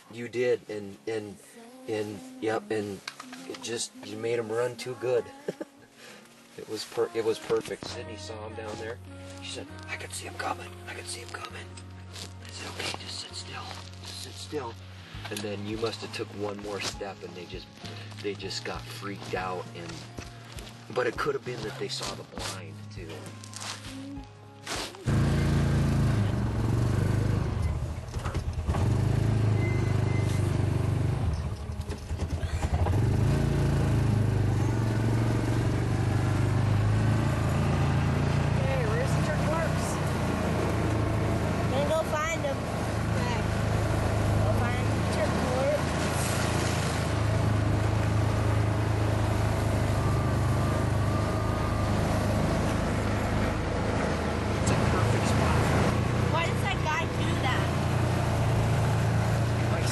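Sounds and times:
vehicle engine running: 25.0 - 59.9.

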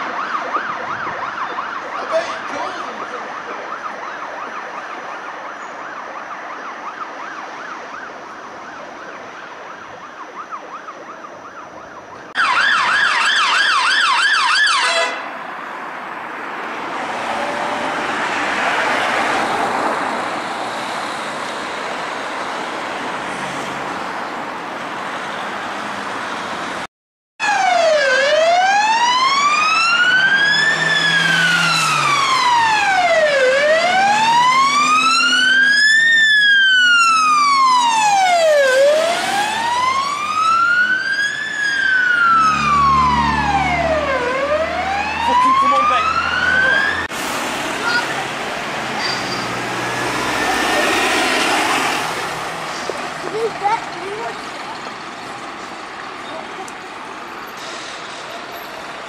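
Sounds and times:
fire engine siren wailing: 0.0 - 15.3, 27.4 - 57.6
traffic noise: 0.0 - 59.0
engine rumble: 29.2 - 59.0.

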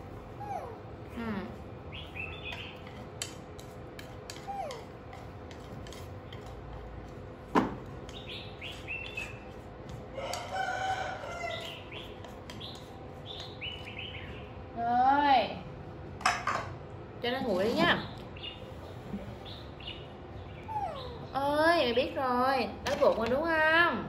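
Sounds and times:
chopsticks scraping metal pan: 2.5 - 7.1.

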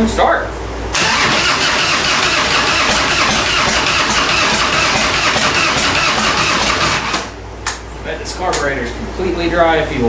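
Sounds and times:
motorcycle starter cranking: 0.9 - 7.4.

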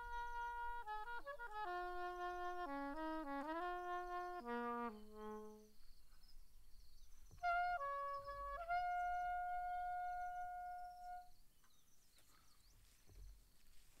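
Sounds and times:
saxophone playing: 0.0 - 5.7, 7.4 - 11.3.

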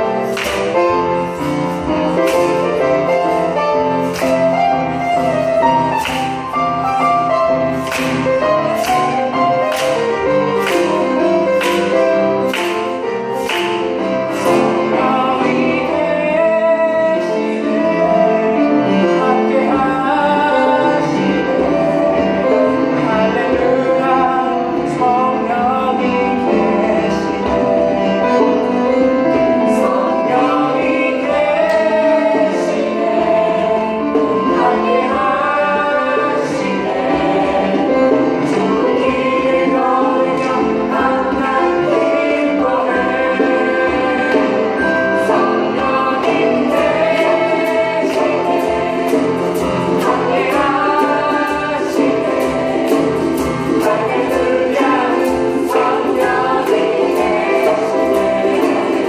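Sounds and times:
group singing in unison: 0.0 - 59.0
instrumental accompaniment: 0.0 - 59.0
people clapping: 0.2 - 14.7.

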